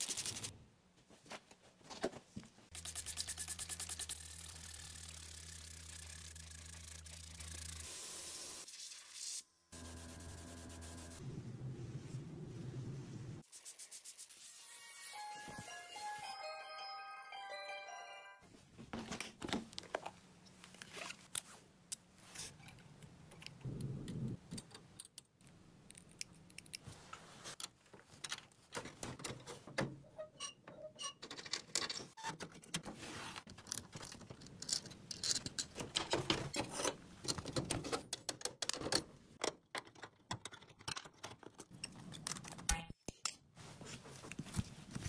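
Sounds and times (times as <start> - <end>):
tools clicking and clattering: 27.6 - 32.9, 33.5 - 43.4.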